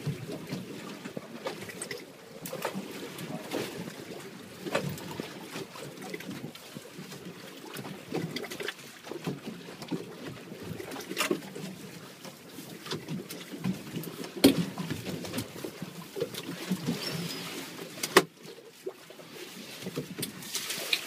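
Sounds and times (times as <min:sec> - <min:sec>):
water slapping boat hull: 0:00.0 - 0:21.0.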